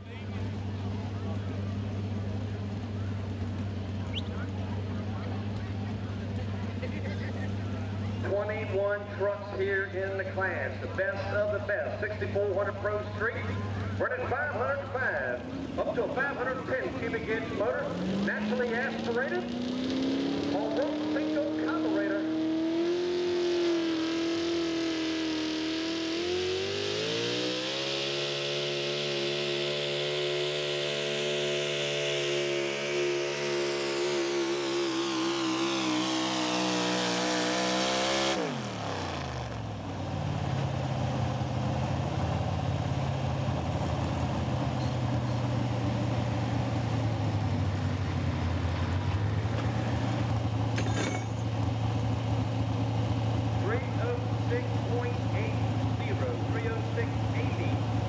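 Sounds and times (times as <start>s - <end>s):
truck engine at high revs: 0.0s - 58.0s.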